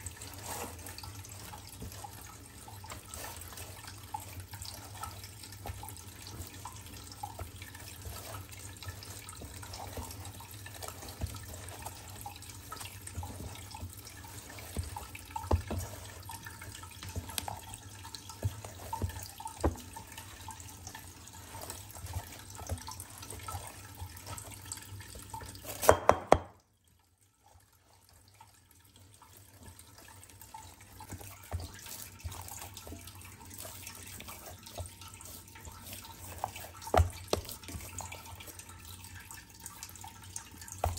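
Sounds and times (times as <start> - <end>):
hand kneading moist dough: 0.0 - 26.4, 27.4 - 40.9.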